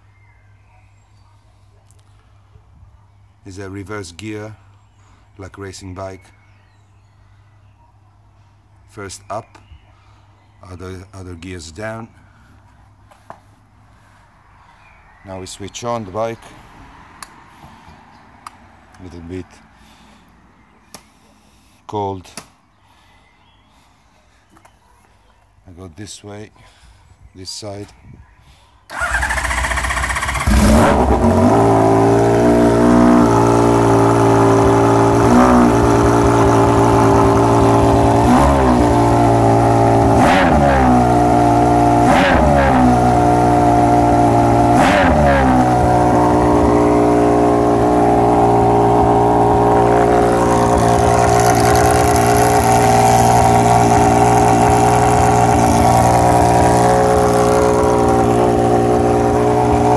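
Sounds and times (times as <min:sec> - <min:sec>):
motorcycle engine revving and idling: 0:28.9 - 0:59.9.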